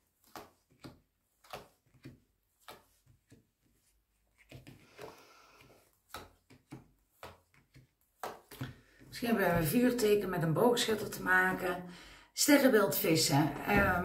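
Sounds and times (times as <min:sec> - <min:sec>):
cards tapping and clicking: 0:00.1 - 0:09.1
cards sliding rustle: 0:00.2 - 0:09.1.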